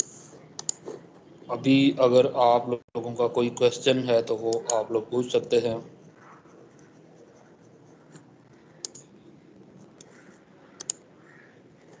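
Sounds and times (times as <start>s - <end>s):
computer mouse clicks: 0.0s - 1.0s, 4.5s - 4.8s, 8.1s - 9.1s, 9.8s - 11.1s
microphone hiss: 0.0s - 12.0s.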